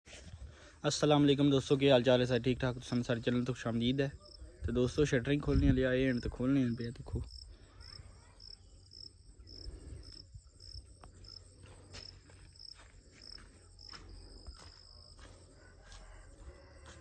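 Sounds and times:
cricket chirping: 4.0s - 17.0s.

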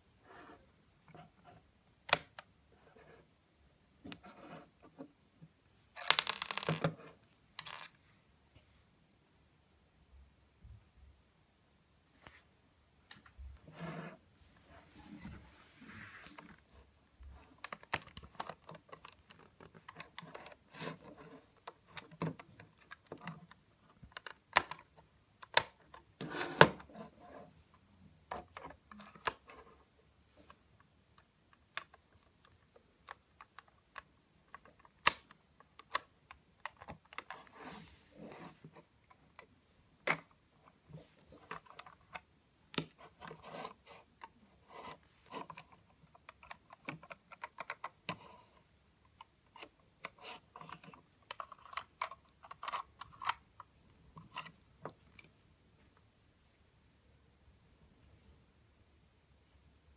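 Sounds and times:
plastic bricks clicking: 6.0s - 7.0s, 7.6s - 8.0s.

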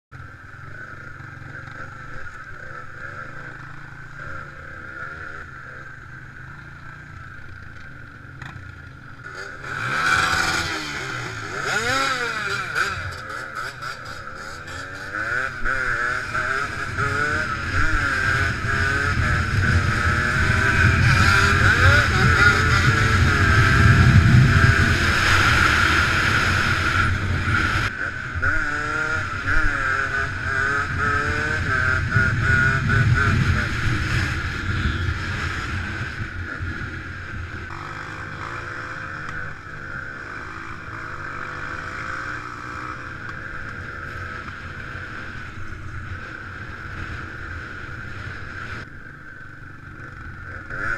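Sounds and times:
dirt bike engines revving: 0.1s - 50.9s.

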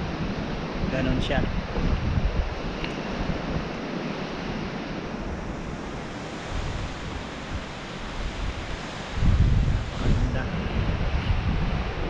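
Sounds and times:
wind gusts on microphone: 0.0s - 12.0s.

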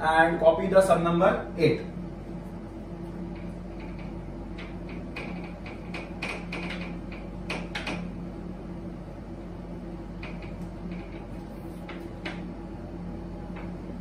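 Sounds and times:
duster wiping whiteboard: 11.1s - 12.4s.

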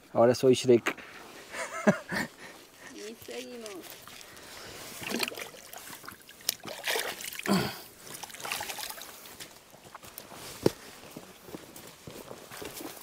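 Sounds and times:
creek trickling: 1.5s - 10.1s
water splashes: 3.0s - 9.5s
steps on rock and grass: 9.0s - 13.0s.

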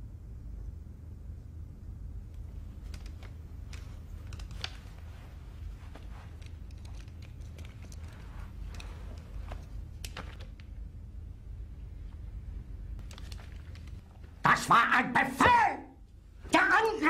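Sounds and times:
low room tone rumble: 0.0s - 17.0s
eyeglasses handling clicks: 2.8s - 5.0s, 6.3s - 8.1s.

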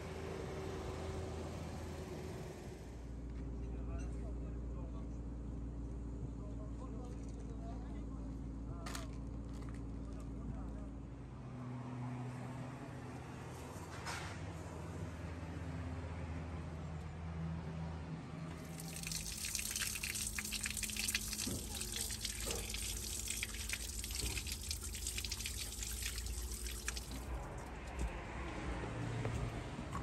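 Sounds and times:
water running from a tap: 18.6s - 27.4s
water splashing over hands: 18.6s - 27.7s.

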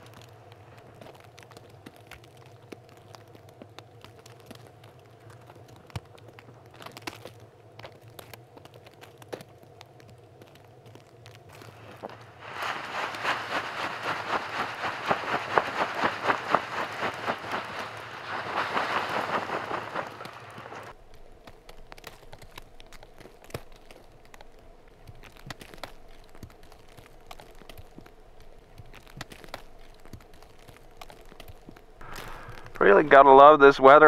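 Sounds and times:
snow crunching and scraping: 11.5s - 21.0s, 22.0s - 34.0s
faint scattered ticks: 20.2s - 33.0s.

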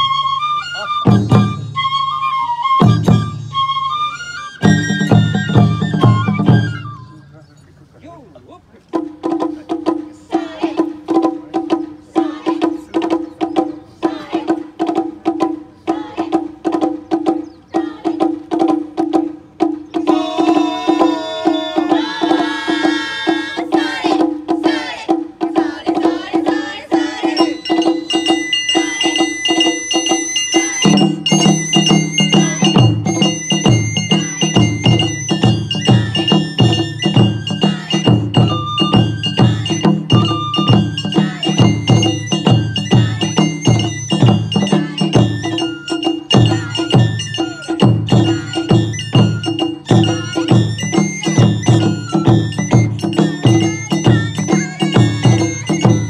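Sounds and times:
bamboo flute melody: 0.0s - 8.3s, 8.9s - 56.0s
taiko drum strikes: 8.9s - 56.0s.

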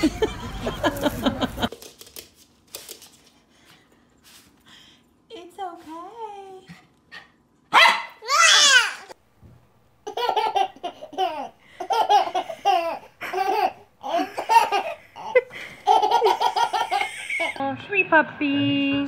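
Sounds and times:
toddler wailing: 8.2s - 9.1s
baby laughing: 10.0s - 17.6s.

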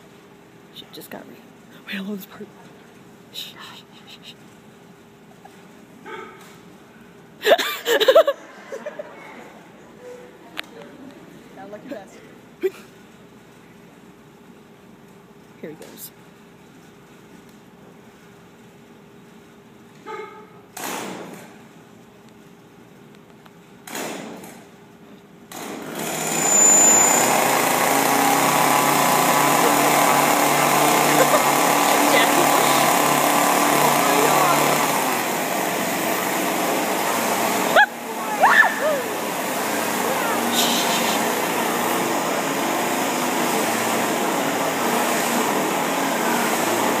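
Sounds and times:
chainsaw being pull-started: 25.5s - 37.7s
chainsaw running loudly: 25.8s - 47.0s.

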